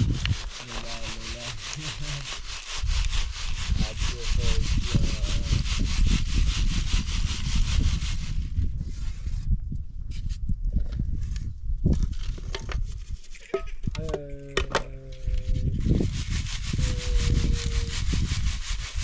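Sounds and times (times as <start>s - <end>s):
flour sieve shaking: 0.0s - 8.5s, 14.9s - 19.0s.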